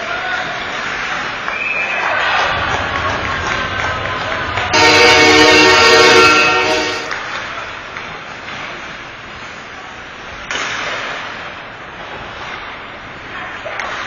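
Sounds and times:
arena crowd: 0:00.0 - 0:08.2
skating sounds: 0:00.0 - 0:14.0
goal horn sounding: 0:04.7 - 0:07.2.

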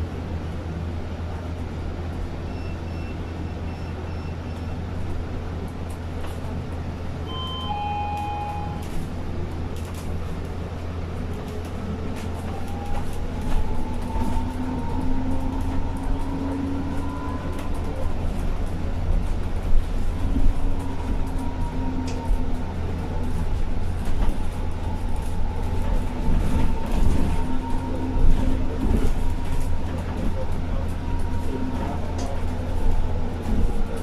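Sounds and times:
road rumble with rattles: 0:00.0 - 0:07.8, 0:08.5 - 0:34.0
brief tone: 0:02.4 - 0:04.8, 0:07.2 - 0:09.0
short electronic beeps: 0:07.3 - 0:09.0.

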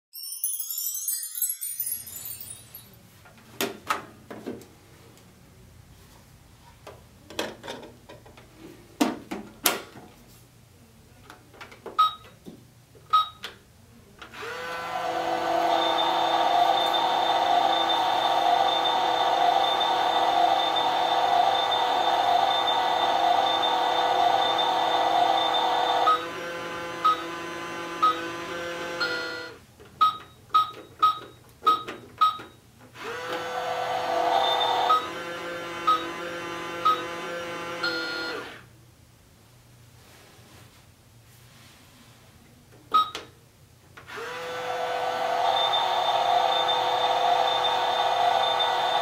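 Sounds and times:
thin high tone: 0:00.1 - 0:03.1
toy microwave beeps: 0:12.0 - 0:12.3, 0:13.1 - 0:13.4, 0:15.6 - 0:26.3, 0:27.0 - 0:27.3, 0:28.0 - 0:28.3, 0:29.0 - 0:32.6, 0:34.2 - 0:35.2, 0:35.8 - 0:36.2, 0:36.8 - 0:37.2, 0:37.8 - 0:38.5, 0:42.9 - 0:43.3, 0:45.4 - 0:49.0
electronic running tone: 0:15.2 - 0:26.4, 0:28.0 - 0:29.6, 0:34.1 - 0:37.2, 0:45.4 - 0:49.0.

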